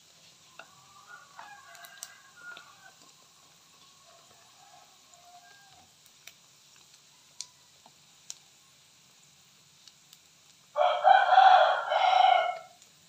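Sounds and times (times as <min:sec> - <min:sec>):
meat frying in oil: 0:00.0 - 0:13.0
rooster crowing: 0:00.6 - 0:03.2, 0:03.8 - 0:05.9, 0:10.8 - 0:12.8.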